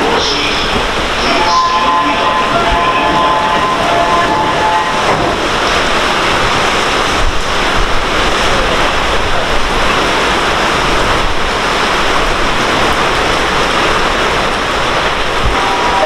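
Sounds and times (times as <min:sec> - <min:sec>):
heavy rain pouring: 0:00.0 - 0:16.0.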